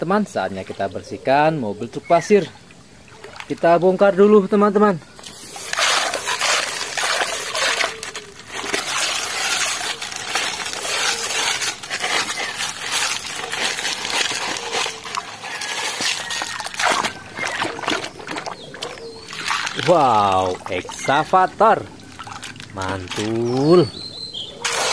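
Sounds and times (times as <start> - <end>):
shallow water splashing: 0.2 - 24.9
wet gravel crunching and rattling: 3.2 - 24.9.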